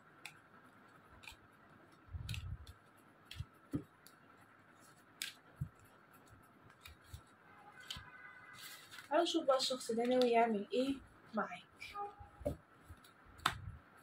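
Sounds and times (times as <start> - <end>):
cards tapping on cloth table: 12.4 - 13.7.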